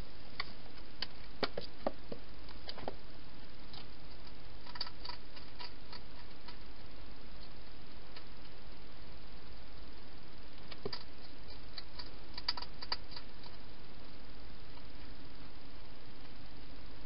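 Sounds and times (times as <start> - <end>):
steady hiss: 0.0 - 17.0
hedgehog claws clicking and tapping: 4.6 - 6.6, 10.6 - 13.6.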